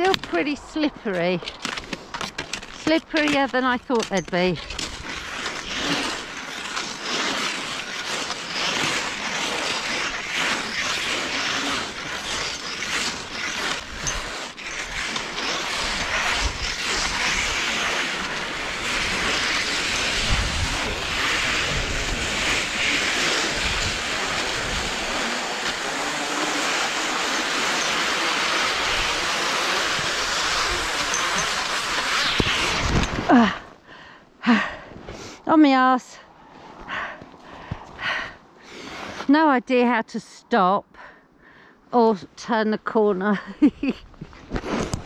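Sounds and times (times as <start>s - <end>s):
skis scraping on icy snow: 0.0s - 33.7s, 36.9s - 39.5s, 43.4s - 45.0s
wind noise on microphone: 12.3s - 26.4s.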